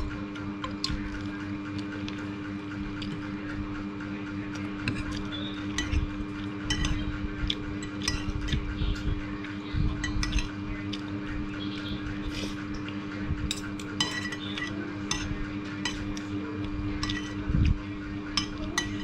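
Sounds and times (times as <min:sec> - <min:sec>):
low hum: 0:00.0 - 0:19.0
cutlery clinking on a plate: 0:06.7 - 0:07.0, 0:07.8 - 0:08.6, 0:10.0 - 0:10.6, 0:13.5 - 0:16.2, 0:17.0 - 0:17.4, 0:18.4 - 0:19.0.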